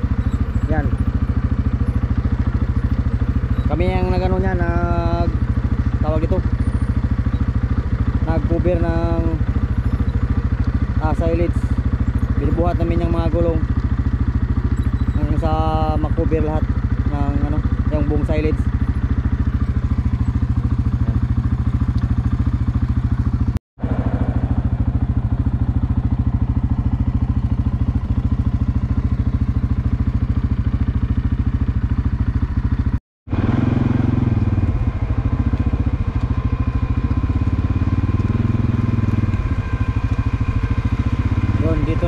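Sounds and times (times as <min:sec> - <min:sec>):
engine running with low pulsing: 0:00.0 - 0:42.0.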